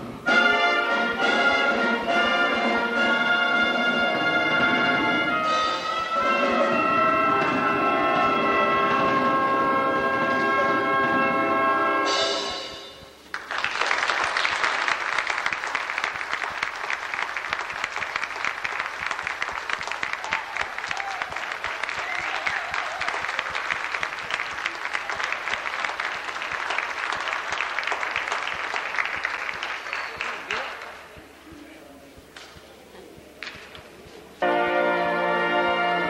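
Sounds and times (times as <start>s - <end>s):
audience applauding: 13.2s - 34.0s.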